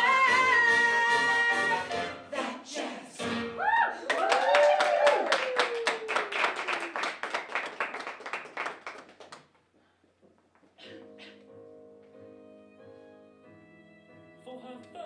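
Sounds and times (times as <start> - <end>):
audience applause: 4.0 - 9.5.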